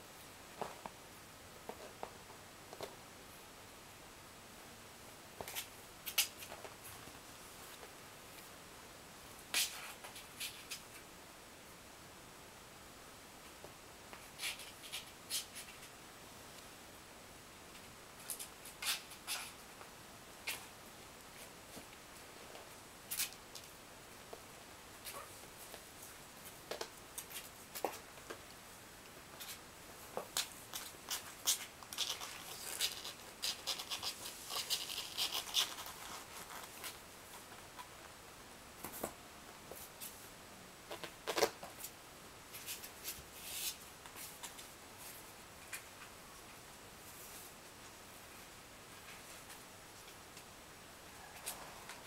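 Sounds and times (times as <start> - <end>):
kittens' claws scratching: 18.2 - 19.6, 30.4 - 37.0.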